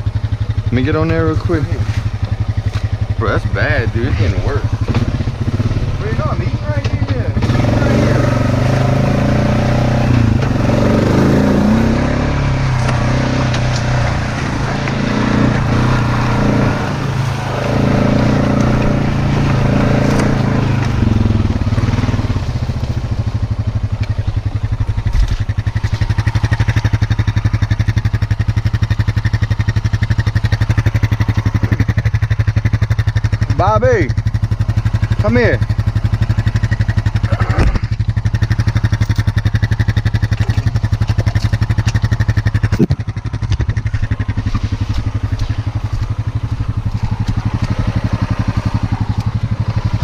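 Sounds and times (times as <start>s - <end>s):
atv engine running and idling: 0.0s - 50.0s.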